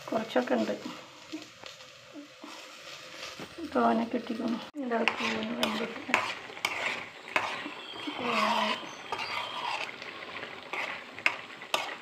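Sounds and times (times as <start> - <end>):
spoon stirring thick curry: 4.9 - 12.0.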